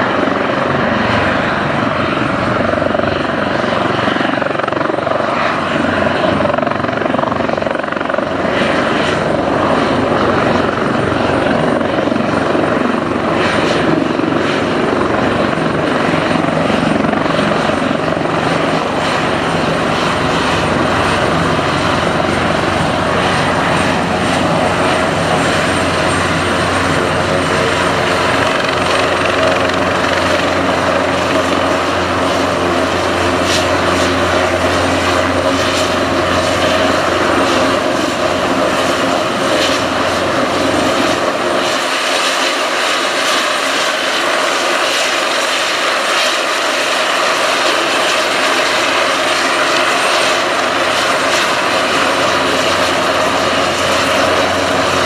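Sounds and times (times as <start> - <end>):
helicopter engines and rotor running: 0.0 - 55.0.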